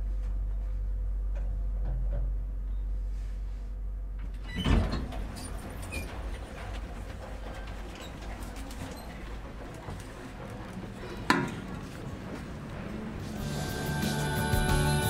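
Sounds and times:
elevator hum: 3.8 - 15.0
elevator doors sliding open: 4.3 - 15.0.

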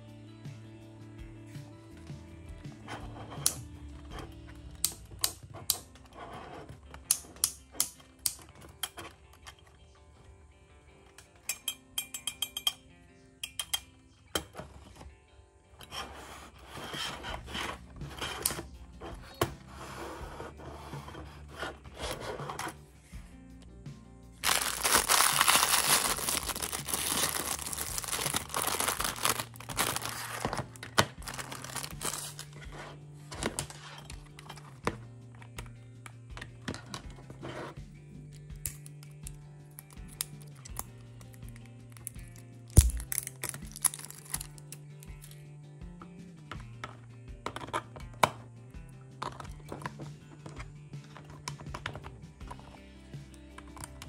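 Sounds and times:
background music: 0.0 - 54.0
plastic bag crinkling: 24.4 - 32.6, 42.8 - 44.6.

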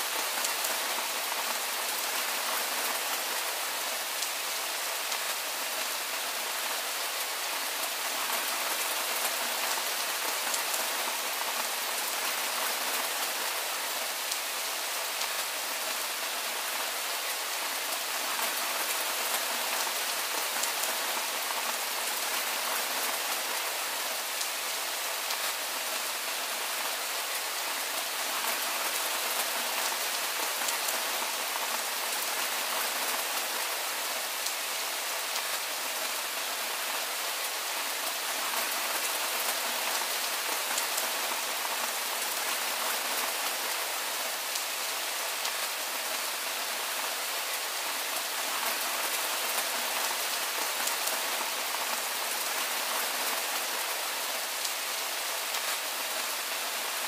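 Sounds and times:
soft rain falling: 0.0 - 57.0.

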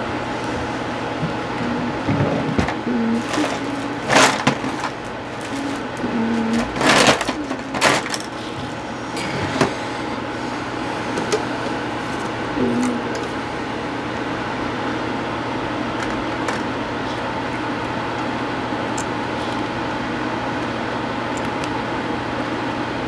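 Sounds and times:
packaging rustling scrapes: 3.1 - 8.1.

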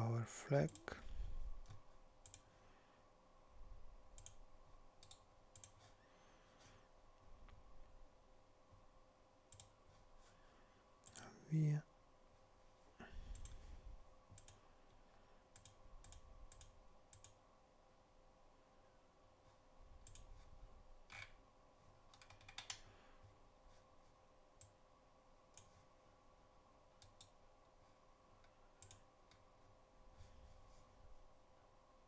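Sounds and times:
computer mouse clicks: 0.7 - 0.9, 1.6 - 2.5, 4.1 - 4.4, 5.0 - 6.0, 9.5 - 9.8, 13.3 - 13.6, 14.3 - 14.6, 15.5 - 17.4, 20.0 - 20.4, 22.1 - 22.9, 25.5 - 25.8, 27.0 - 27.4, 28.4 - 29.5.

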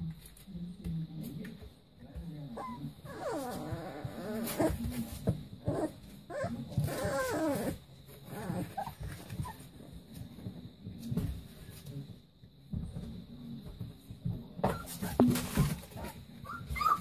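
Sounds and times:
puppies grumbling: 2.4 - 10.1, 14.6 - 17.0
puppies whining: 2.6 - 4.8, 5.6 - 9.8, 16.4 - 17.0.

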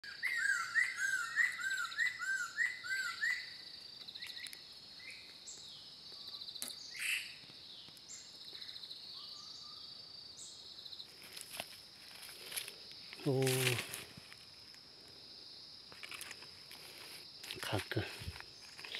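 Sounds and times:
scattered bird calls: 0.0 - 11.3.

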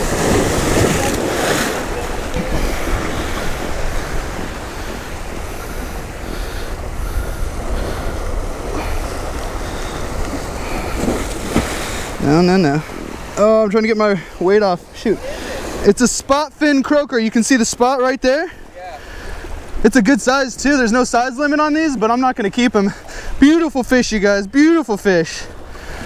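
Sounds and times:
wave crashing loudly: 0.0 - 10.0
surf breaking over rocks: 0.0 - 14.7.

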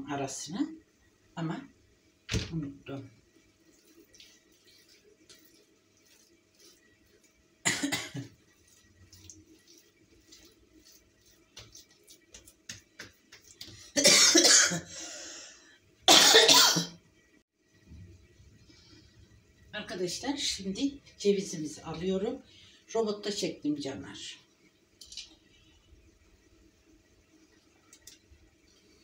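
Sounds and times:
dough rolled on tiled counter: 2.3 - 14.0
woman coughing: 7.6 - 8.3, 13.9 - 14.9, 16.1 - 17.0.

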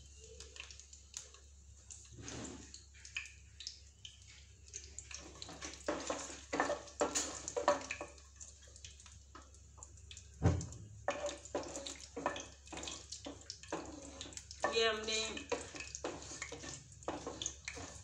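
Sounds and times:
hot oil sizzling: 0.0 - 18.0
wooden spatula scraping pan: 5.2 - 8.2, 11.1 - 18.0.

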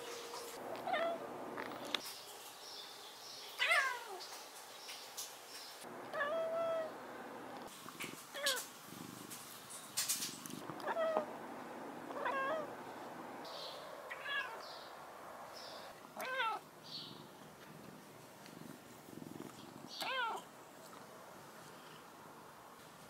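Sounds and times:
cat meowing: 0.8 - 1.2, 3.6 - 4.2, 6.1 - 6.9, 10.8 - 11.3, 12.1 - 12.7, 14.1 - 14.6, 16.2 - 16.6, 19.9 - 20.5.

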